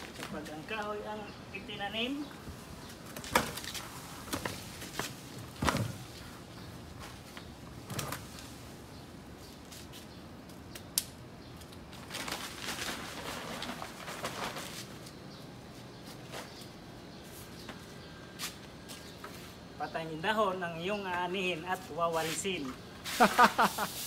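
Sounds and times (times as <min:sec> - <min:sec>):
broom sweeping on paving: 0:22.1 - 0:24.0.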